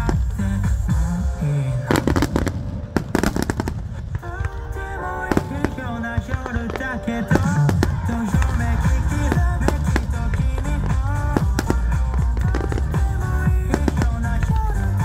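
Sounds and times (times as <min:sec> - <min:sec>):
low rumble: 0:00.0 - 0:15.0
music playing: 0:00.0 - 0:15.0
firework shells bursting: 0:01.8 - 0:15.0.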